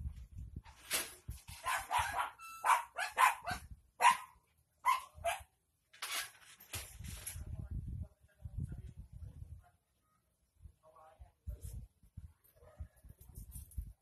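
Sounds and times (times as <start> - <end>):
dog barking: 1.6 - 5.5, 12.6 - 12.9.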